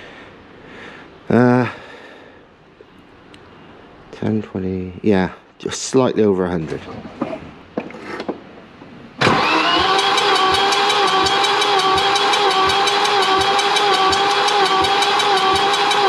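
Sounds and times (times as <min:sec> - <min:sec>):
starter motor cranking engine: 0:09.2 - 0:16.0.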